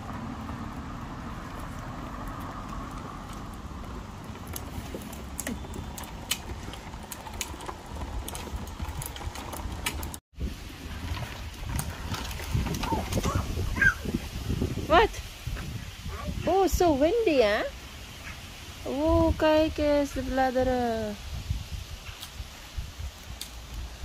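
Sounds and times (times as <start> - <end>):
plastic wheels clicking over paving: 0.0 - 15.8
wind rumbling on microphone: 0.0 - 24.0.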